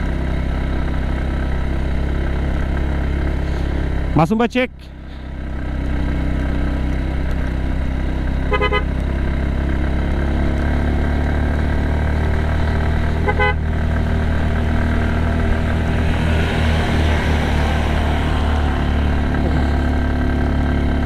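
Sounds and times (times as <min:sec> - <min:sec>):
motorcycle engine running: 0:00.0 - 0:21.0
vehicle horn toots: 0:08.4 - 0:09.0, 0:13.2 - 0:13.7.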